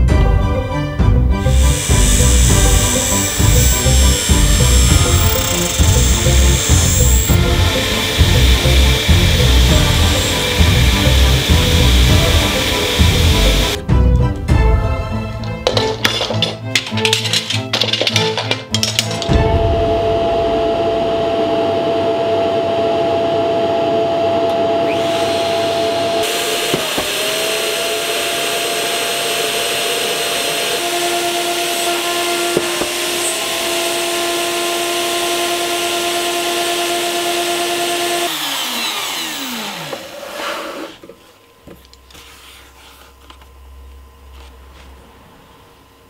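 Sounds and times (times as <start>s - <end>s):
dust extraction rushing noise: 1.4s - 13.8s
router motor whine: 1.4s - 13.8s, 20.0s - 41.0s.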